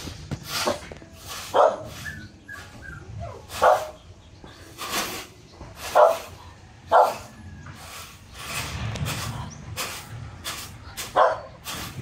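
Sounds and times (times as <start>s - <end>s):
dog barking: 1.5s - 2.0s, 3.3s - 4.0s, 5.9s - 7.3s, 11.1s - 11.6s.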